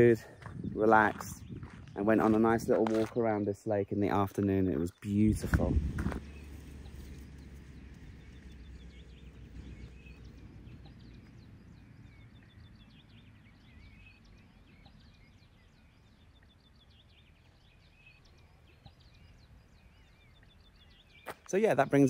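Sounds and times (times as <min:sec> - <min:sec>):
small birds chirping: 0:00.0 - 0:22.0
low background rumble: 0:05.1 - 0:21.2.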